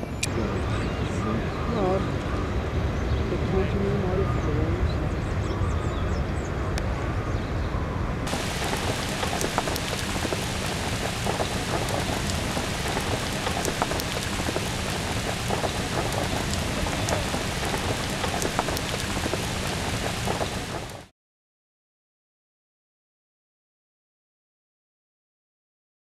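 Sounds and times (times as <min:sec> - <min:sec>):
heavy rain on lake water: 0:08.3 - 0:21.1.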